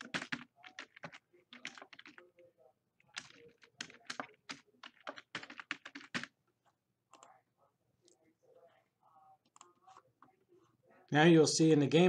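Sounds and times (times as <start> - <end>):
computer keyboard typing: 0.0 - 6.3.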